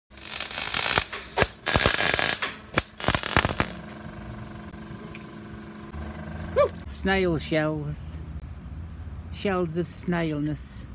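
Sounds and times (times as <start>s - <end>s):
plasma cutter hissing and cracking: 0.1s - 5.8s
steady hum: 2.6s - 6.9s.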